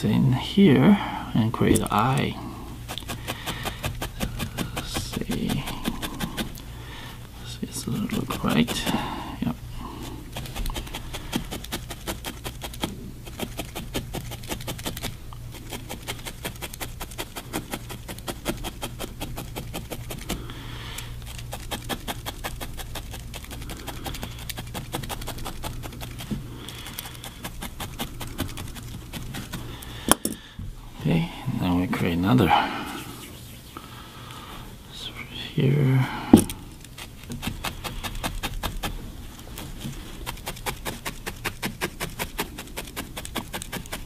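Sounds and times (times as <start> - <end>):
felting needle poking wool: 2.8 - 6.7, 7.7 - 20.4, 21.0 - 30.3, 36.4 - 44.0.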